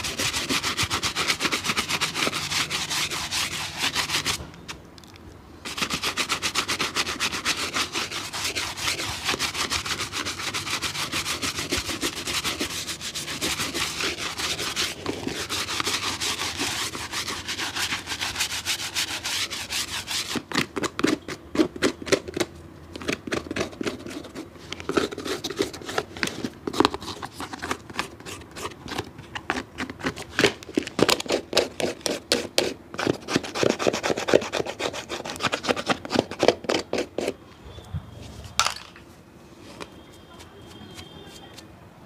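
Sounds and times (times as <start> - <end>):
scrubbing strokes on a shoe: 0.0 - 4.4, 5.7 - 21.7, 31.1 - 37.4.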